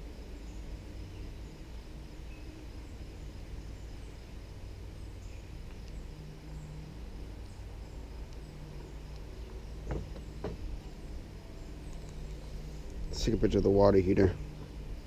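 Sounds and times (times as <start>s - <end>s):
steady low rumble: 0.0s - 15.0s
faint high bird chirps: 0.3s - 4.2s.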